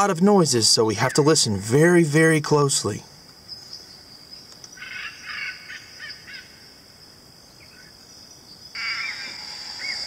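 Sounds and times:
short faint animal calls: 0:08.8 - 0:10.0.

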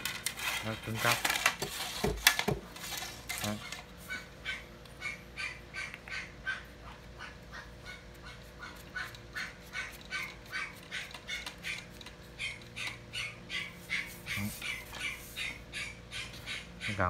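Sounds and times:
birds calling: 0:04.0 - 0:17.0.

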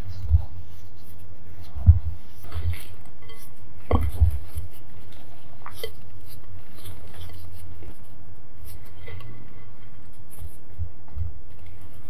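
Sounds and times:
spatula squishing cake batter: 0:00.0 - 0:12.0
spatula scraping glass bowl: 0:02.4 - 0:04.8.

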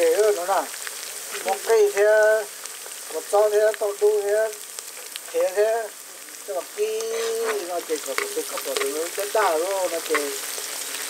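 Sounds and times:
person talking: 0:00.0 - 0:00.7, 0:01.4 - 0:02.5, 0:03.1 - 0:04.6, 0:05.3 - 0:10.4
food sizzling in hot oil: 0:00.0 - 0:11.0.

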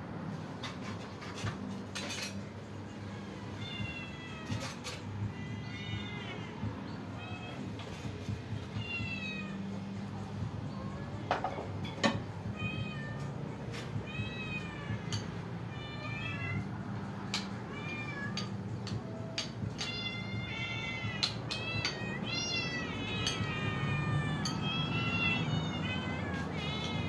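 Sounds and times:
cats and kittens meowing: 0:00.8 - 0:27.0.

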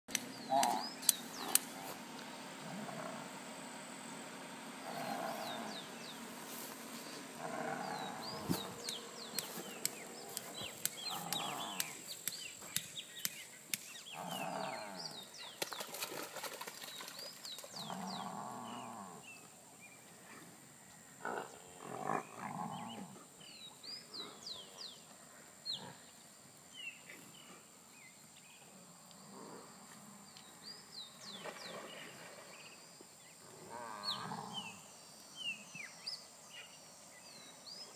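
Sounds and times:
small birds chirping: 0:00.1 - 0:03.2, 0:04.7 - 0:20.2, 0:22.2 - 0:29.3
water buffalo lowing: 0:00.4 - 0:06.2, 0:07.2 - 0:12.1, 0:14.1 - 0:15.3.

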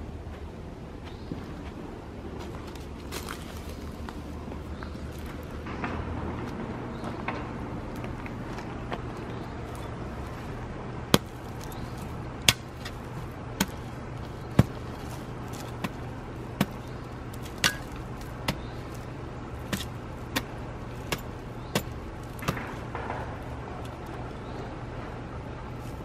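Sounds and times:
low background hum: 0:00.0 - 0:26.0
hand hoe chopping soil: 0:11.1 - 0:23.0.

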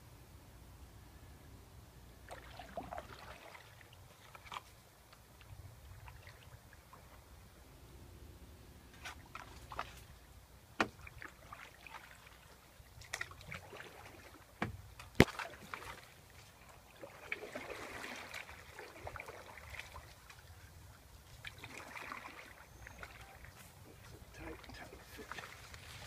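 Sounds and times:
canoe paddling through water: 0:02.2 - 0:07.8, 0:08.8 - 0:26.0
water trickling and dripping: 0:10.9 - 0:26.0.

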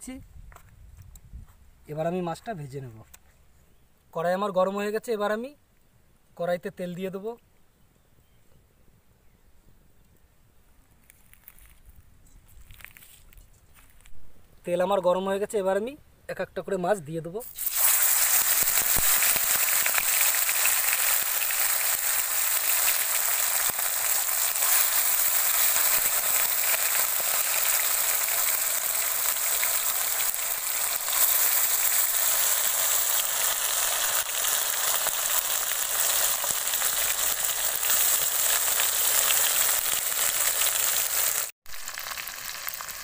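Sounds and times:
fish sizzling in hot oil: 0:17.5 - 0:43.0.

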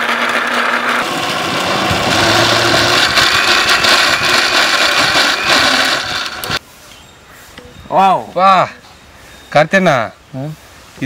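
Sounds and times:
blender motor whirring: 0:00.0 - 0:06.6.

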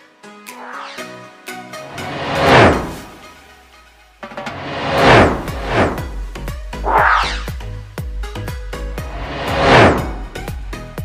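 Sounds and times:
whoosh: 0:00.5 - 0:03.4, 0:04.5 - 0:07.7, 0:08.9 - 0:10.6.

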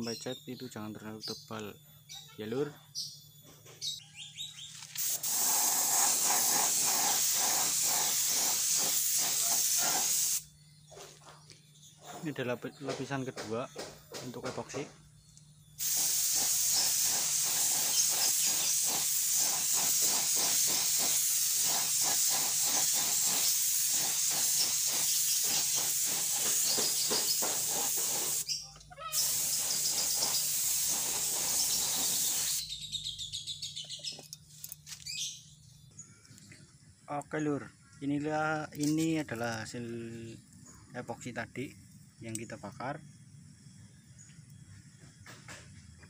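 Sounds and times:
birds chirping faintly: 0:00.0 - 0:06.1, 0:28.4 - 0:45.8
air spray gun hissing: 0:04.8 - 0:10.5, 0:15.8 - 0:32.7.

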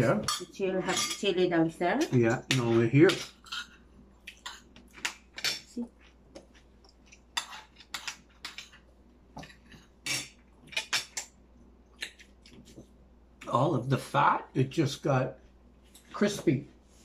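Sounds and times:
cutlery clinking against plates: 0:00.1 - 0:01.3, 0:02.0 - 0:05.8, 0:07.0 - 0:08.8, 0:09.4 - 0:11.3.

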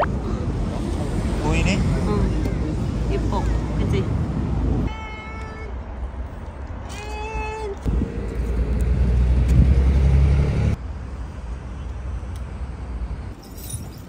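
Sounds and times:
steady traffic noise: 0:00.0 - 0:14.0
vehicle engine rumbling: 0:05.8 - 0:14.0.

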